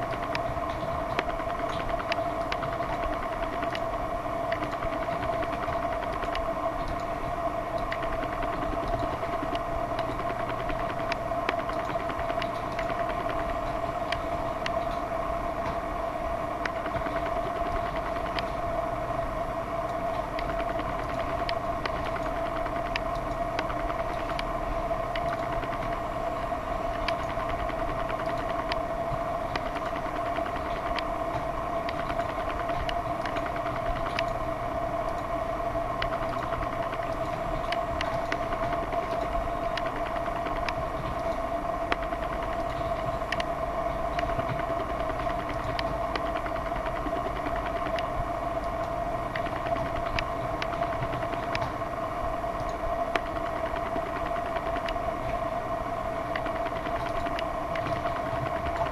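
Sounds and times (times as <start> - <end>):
machine hum with high whine: 0.0 - 58.9.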